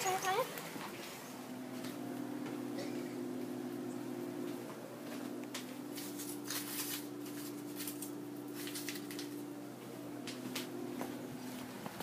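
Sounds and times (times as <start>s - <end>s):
steady low hum: 0.0s - 12.0s
rustling and handling noises: 4.4s - 12.0s.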